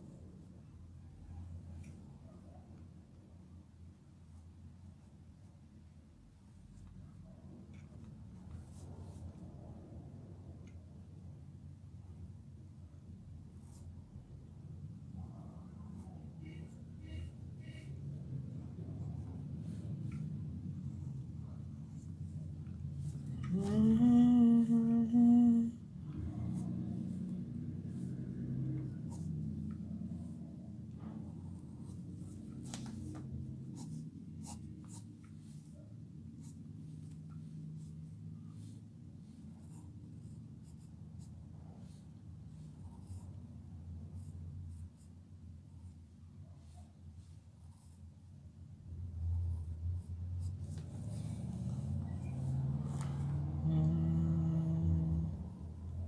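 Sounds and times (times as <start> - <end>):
low hum: 12.0 - 44.8, 48.7 - 56.0
person humming: 23.3 - 25.9, 53.2 - 55.5
pencil sketching on paper: 26.3 - 30.6, 31.2 - 48.3.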